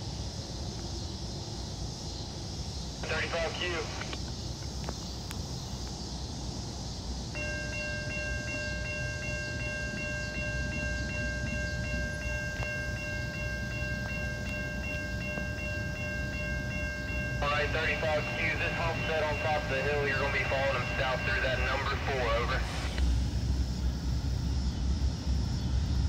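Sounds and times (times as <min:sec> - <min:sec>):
crossing warning bell ringing: 0:07.3 - 0:22.9.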